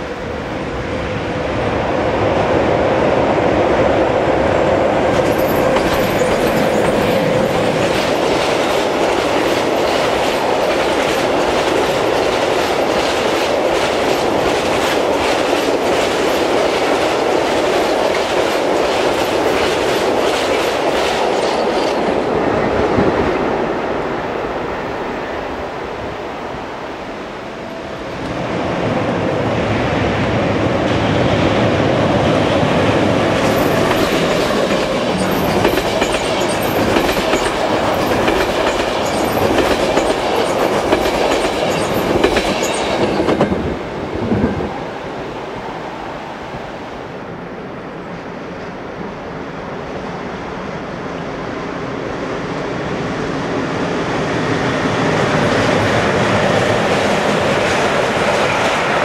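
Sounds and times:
freight train passing at speed: 0:00.0 - 0:59.0
train rolling over steel bridge: 0:00.0 - 0:59.0
wheels clicking over rail joints: 0:05.1 - 0:22.1, 0:33.4 - 0:43.6.

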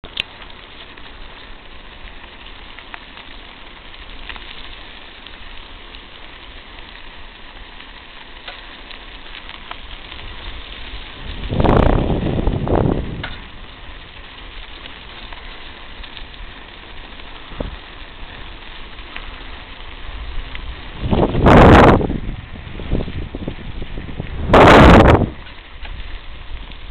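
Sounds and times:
tyres rolling on gravel: 0:00.0 - 0:26.9
loud rough rush of noise: 0:11.2 - 0:13.2, 0:20.1 - 0:25.4.

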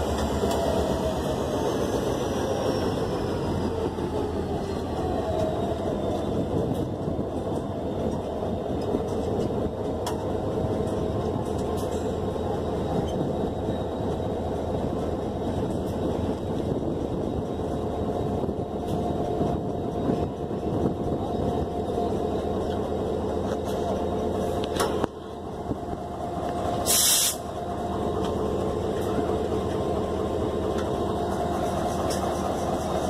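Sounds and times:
diesel locomotive idling: 0:00.0 - 0:33.0
short loud hiss: 0:26.9 - 0:27.4.

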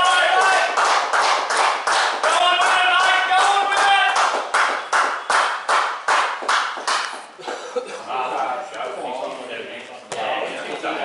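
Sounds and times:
spectators clapping: 0:00.0 - 0:07.6.

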